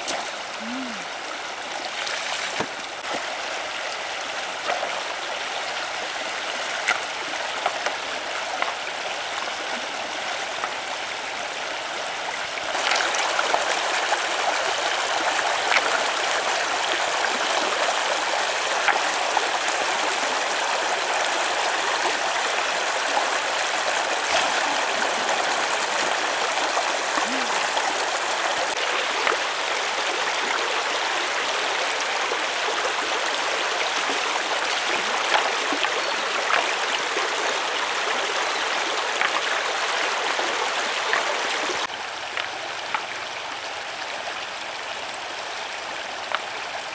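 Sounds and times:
small water splashes: 0.0 - 10.8, 12.6 - 20.6, 22.0 - 30.8, 33.7 - 43.2
stream flowing over stones: 0.0 - 46.9.

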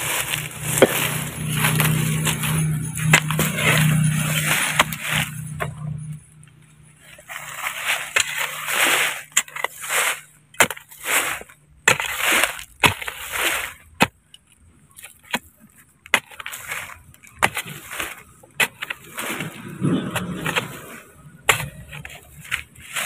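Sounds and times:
hoe chopping into dry soil: 0.0 - 5.6, 7.3 - 14.3, 14.9 - 23.0
loosened dirt crumbling: 0.0 - 23.0.

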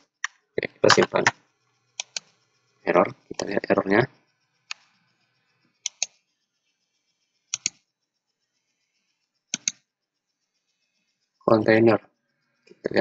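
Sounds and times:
mouse button clicks: 5.8 - 6.1.

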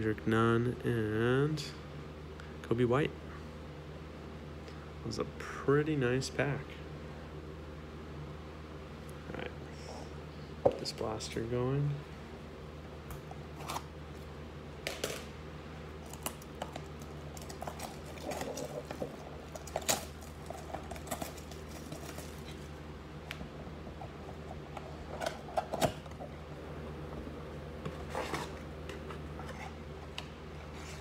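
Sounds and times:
shrink wrap tearing and crinkling: 16.0 - 22.7.

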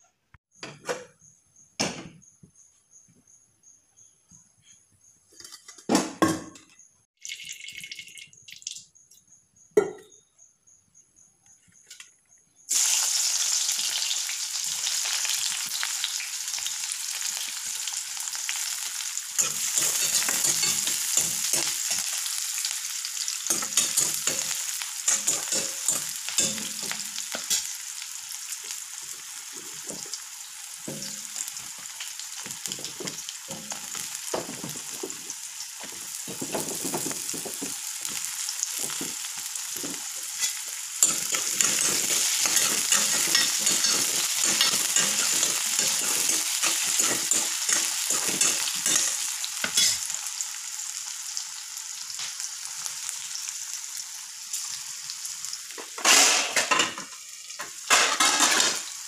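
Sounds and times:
onions sizzling in hot oil: 12.7 - 59.0
ladle knocking and scraping pan: 39.8 - 50.0.

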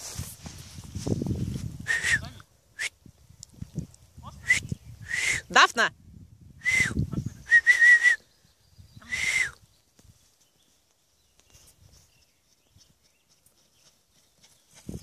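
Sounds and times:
person whistling calls: 1.9 - 3.0, 4.4 - 5.5, 6.6 - 8.3, 9.0 - 9.6.

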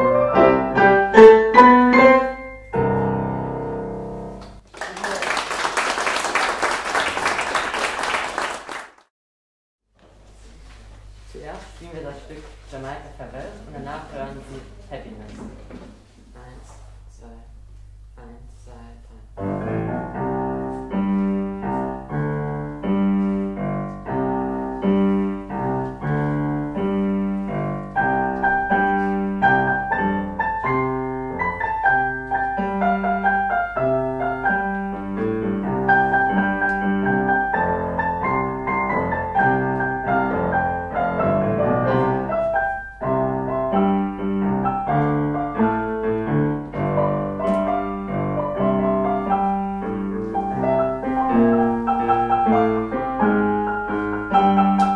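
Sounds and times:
keyboard piece with chords: 0.0 - 4.7, 19.4 - 54.9.

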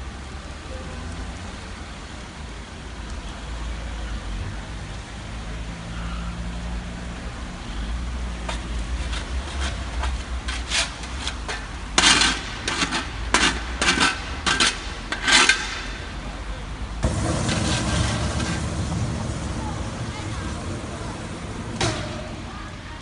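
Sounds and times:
burning car crackling and popping: 7.2 - 23.0
low rumble: 17.0 - 23.0
sharp cracks and bangs: 17.0 - 23.0.

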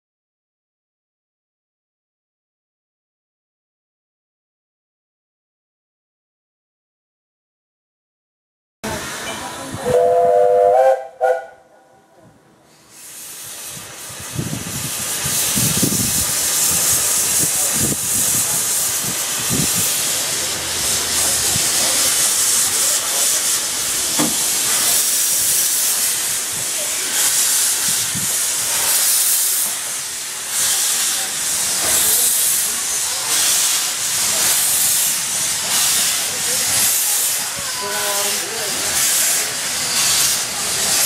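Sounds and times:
steam hissing from locomotive: 8.8 - 11.4, 12.6 - 41.0.

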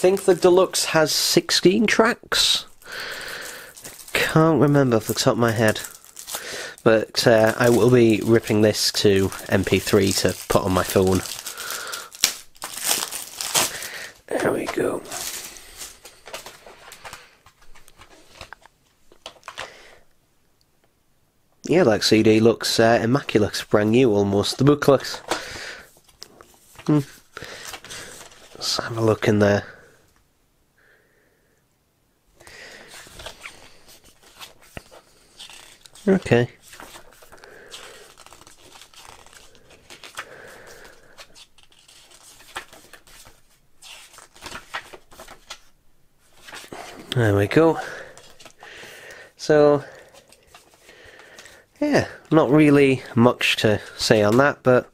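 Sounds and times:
plastic rustling: 2.6 - 19.7, 22.6 - 29.3, 32.5 - 49.2, 49.8 - 52.4
paper pages turning: 7.1 - 19.7, 23.6 - 28.9, 32.7 - 47.2, 48.0 - 48.6, 50.1 - 51.6.

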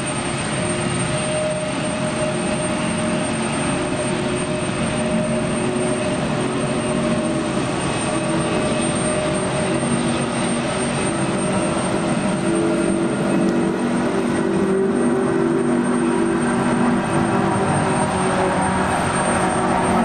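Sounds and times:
jet engine roar: 0.0 - 20.0
humming tones: 0.3 - 20.0.

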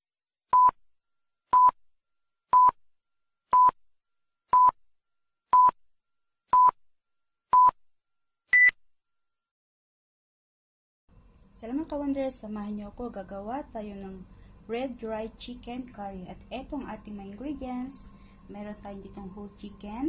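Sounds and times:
short electronic beeps: 8.5 - 8.8.

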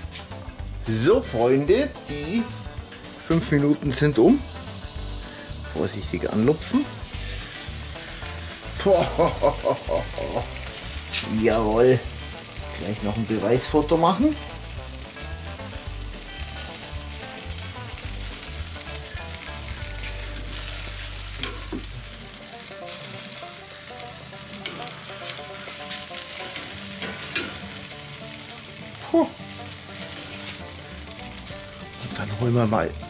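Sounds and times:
food sizzling on a grill: 0.0 - 33.0
metal tongs clicking on grate: 27.0 - 27.6.

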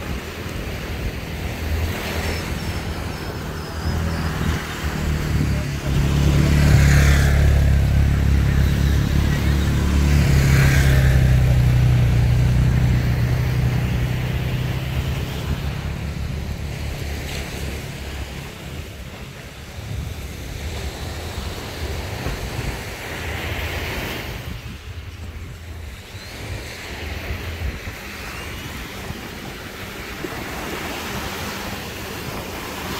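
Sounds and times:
surf washing on shore: 0.0 - 32.9
wind on microphone: 0.0 - 32.9
vehicle engine running: 3.0 - 18.4.

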